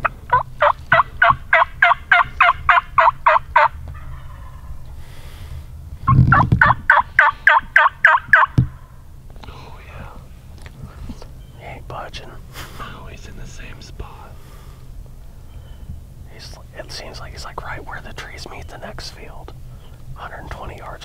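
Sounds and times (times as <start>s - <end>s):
turkey mouth call yelping: 0.0s - 4.8s, 6.1s - 8.8s.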